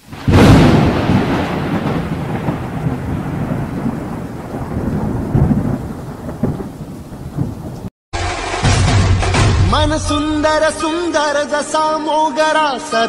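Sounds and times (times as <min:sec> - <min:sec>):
rain hiss: 0:00.0 - 0:07.9
rolling thunder: 0:00.0 - 0:07.9.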